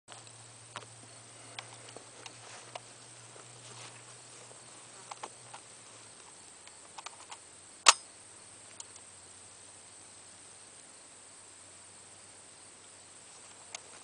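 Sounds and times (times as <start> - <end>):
sharp metallic gun action clack: 7.9 - 8.1.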